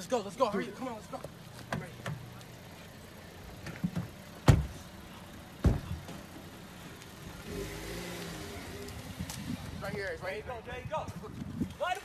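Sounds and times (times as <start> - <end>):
car engine revving: 2.4 - 10.1
heavy thump: 5.6 - 6.2.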